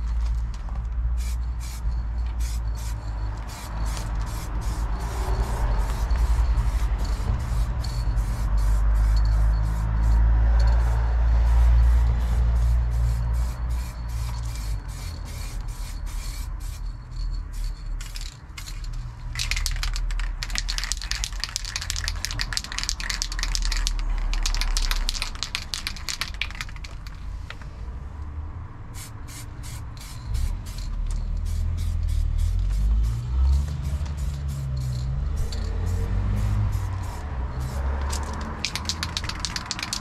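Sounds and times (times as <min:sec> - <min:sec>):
paint spraying hiss: 0:02.4 - 0:10.1, 0:35.8 - 0:40.0.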